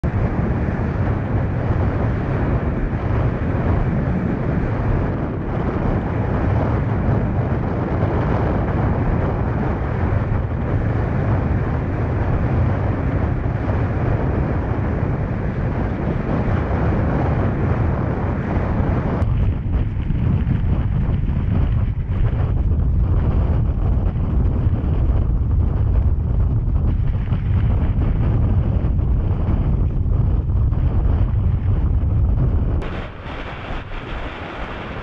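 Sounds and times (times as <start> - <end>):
wind buffeting microphone: 0.0 - 35.0
rushing water: 32.8 - 35.0.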